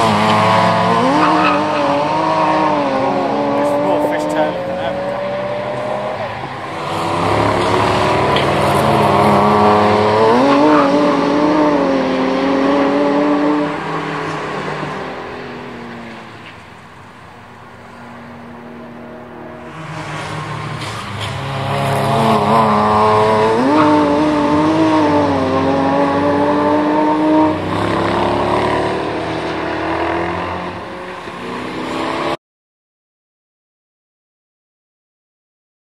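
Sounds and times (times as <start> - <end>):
race cars accelerating past: 0.0 - 32.4.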